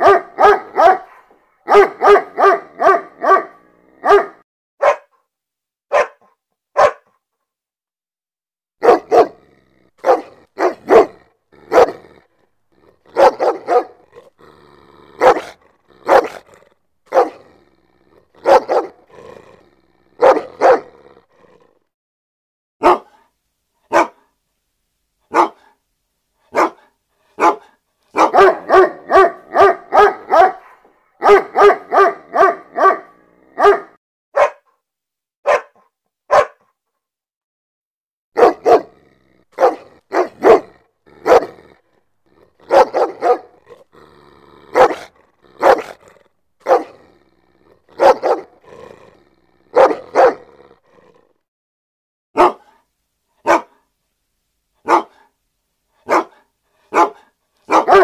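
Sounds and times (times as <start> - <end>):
dog barking: 0.0 - 5.2, 5.9 - 7.2, 8.8 - 12.2, 13.0 - 14.2, 15.2 - 17.5, 18.4 - 19.3, 20.2 - 21.0, 22.8 - 23.3, 23.9 - 24.3, 25.3 - 25.8, 26.5 - 34.8, 35.4 - 36.7, 38.4 - 41.8, 42.4 - 43.8, 44.7 - 47.1, 47.7 - 48.6, 49.7 - 50.6, 52.4 - 53.9, 54.8 - 55.4, 56.0 - 58.0.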